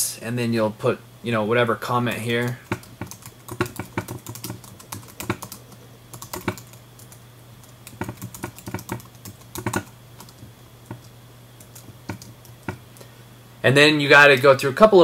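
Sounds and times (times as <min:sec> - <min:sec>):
steady low hum: 0:00.0 - 0:15.0
keyboard typing clicks: 0:02.4 - 0:12.8.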